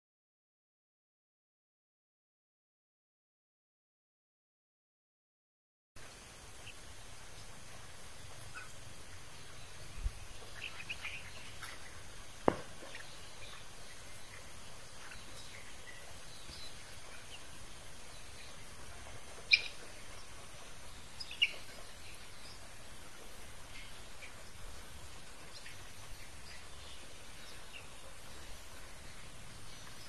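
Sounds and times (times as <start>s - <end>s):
low background hiss: 6.0s - 30.0s
chicks cheeping: 8.2s - 30.0s.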